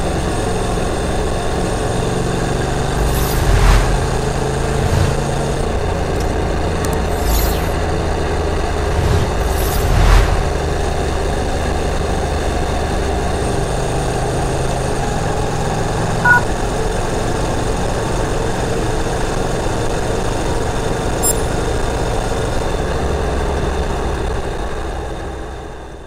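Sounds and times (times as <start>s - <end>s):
wind and road noise: 0.6s - 13.5s
two-tone beep: 16.2s - 16.5s, 21.2s - 21.7s.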